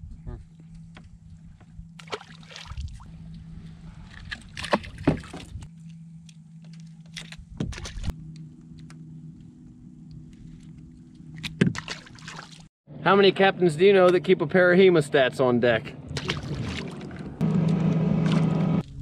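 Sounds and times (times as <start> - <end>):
steady low hum: 0.0 - 11.6
water sloshing: 1.9 - 5.7, 10.5 - 12.7, 16.1 - 19.0.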